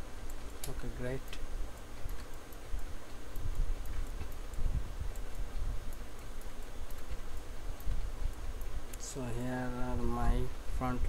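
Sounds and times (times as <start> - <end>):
computer mouse and keyboard clicks: 0.2 - 9.1.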